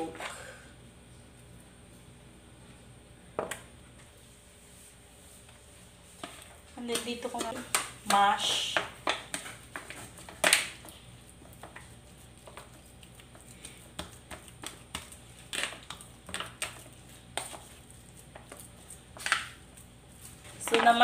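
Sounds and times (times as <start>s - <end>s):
spoon scraping and tapping foil: 6.2s - 21.0s.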